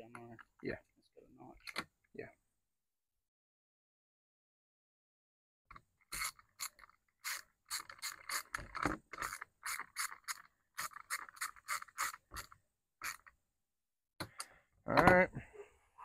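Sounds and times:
hand ratchet clicking: 0:06.1 - 0:08.6, 0:09.2 - 0:13.3.

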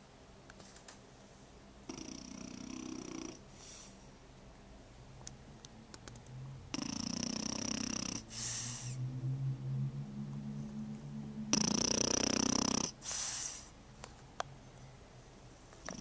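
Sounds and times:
puppy snoring: 0:01.8 - 0:03.9, 0:06.7 - 0:09.0, 0:11.5 - 0:13.7.

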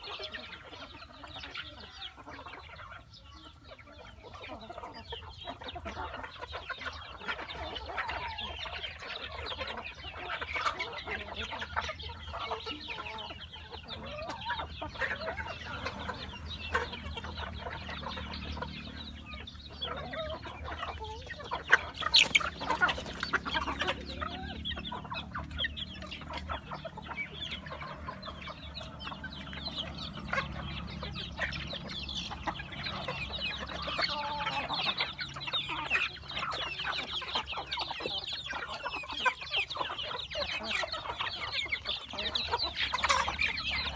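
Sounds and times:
chicks clucking and chirping: 0:00.0 - 0:43.9.

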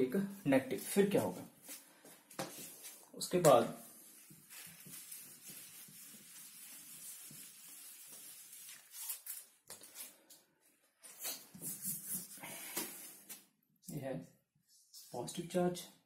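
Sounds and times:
duster wiping whiteboard: 0:03.9 - 0:09.0.

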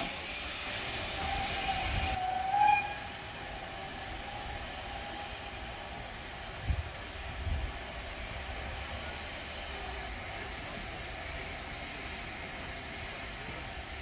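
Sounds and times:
steam locomotive whistle: 0:00.0 - 0:05.6
train rumbling: 0:00.0 - 0:14.0.

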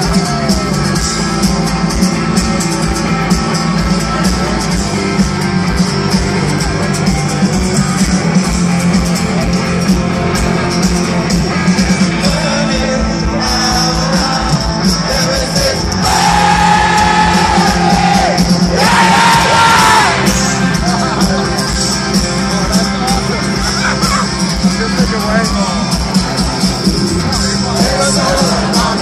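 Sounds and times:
live rock band playing: 0:00.0 - 0:29.0
drum hits: 0:16.0 - 0:21.5.

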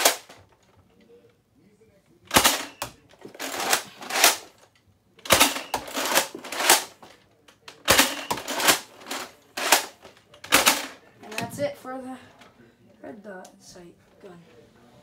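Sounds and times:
toy blaster cocking and firing: 0:00.0 - 0:00.4, 0:02.3 - 0:04.5, 0:05.2 - 0:07.0, 0:07.8 - 0:11.0.

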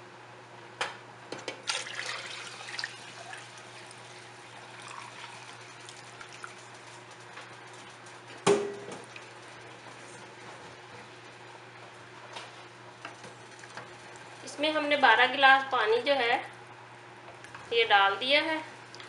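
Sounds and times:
water pouring into metal pot: 0:01.6 - 0:06.8.

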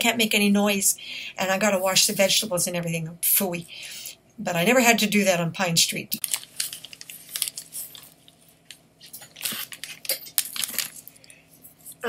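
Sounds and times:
food and containers handled: 0:06.2 - 0:12.0.

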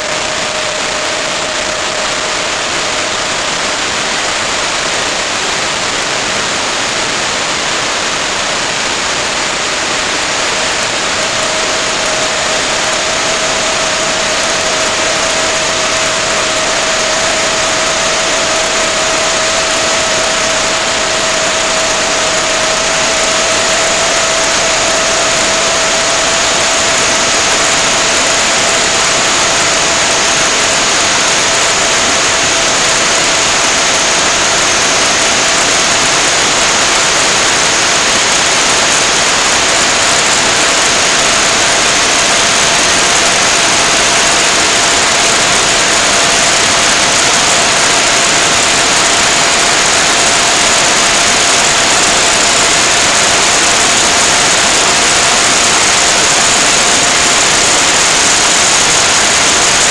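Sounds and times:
high whine: 0:00.0 - 0:59.9
loud steady hiss: 0:00.0 - 0:59.9
low whine: 0:00.0 - 0:59.9.

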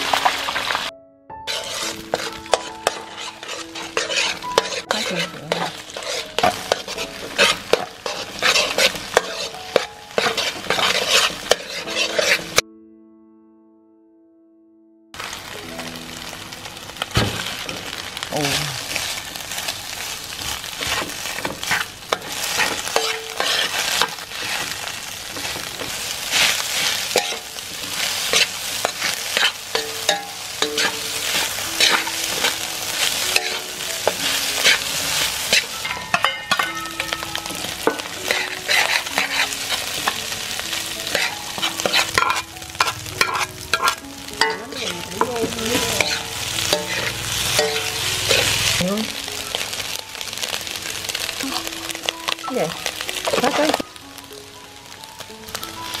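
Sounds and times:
frying sizzle: 0:00.0 - 0:00.9, 0:01.5 - 0:12.6, 0:15.2 - 0:56.0
metal spatula scraping a wok: 0:01.5 - 0:12.6, 0:18.5 - 0:48.9.

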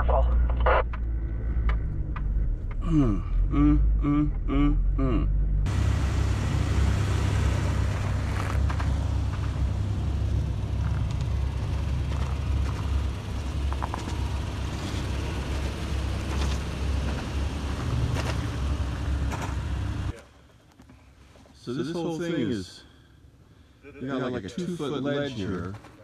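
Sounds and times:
vehicle engine low rumble: 0:00.0 - 0:20.2.

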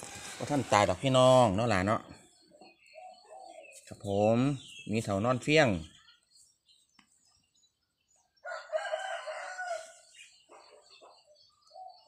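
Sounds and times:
rooster crowing: 0:08.4 - 0:10.1.

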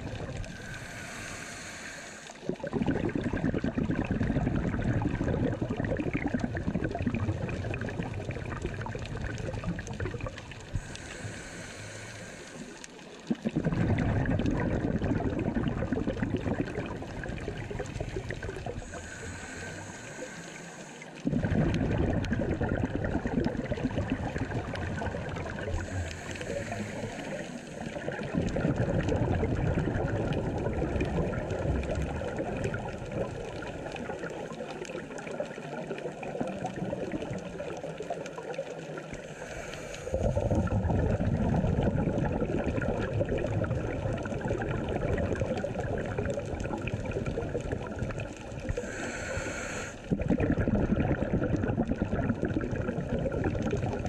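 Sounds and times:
exhaled bubbles rushing: 0:00.0 - 0:01.6, 0:02.4 - 0:20.4, 0:21.1 - 0:54.0
regulator inhale hiss: 0:00.3 - 0:02.5, 0:10.6 - 0:13.2, 0:17.9 - 0:21.3, 0:25.3 - 0:28.0, 0:39.1 - 0:40.7, 0:48.3 - 0:50.2.

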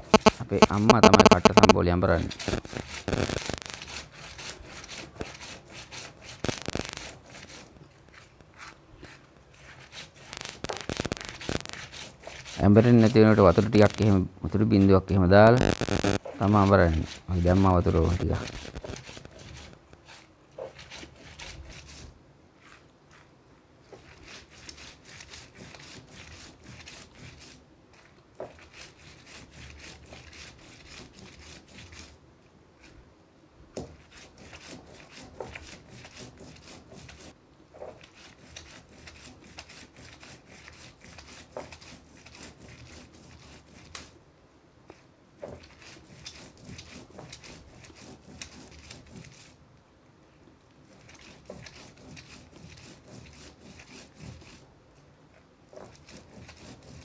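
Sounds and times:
stone roller grinding chillies: 0:00.0 - 0:22.0.

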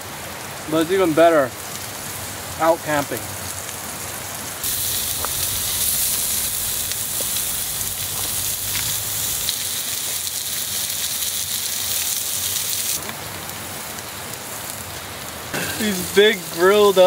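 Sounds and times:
meat and onions sizzling on grill: 0:00.0 - 0:17.0
fat popping: 0:04.6 - 0:09.6.

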